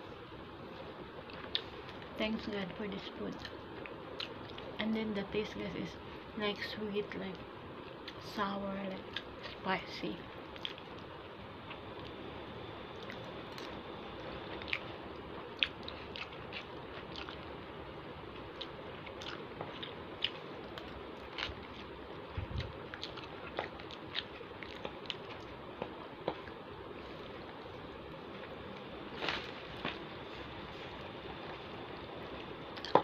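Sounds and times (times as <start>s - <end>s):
faint background hum: 0.0s - 33.0s
person chewing: 10.5s - 11.1s, 13.0s - 17.5s, 18.3s - 33.0s.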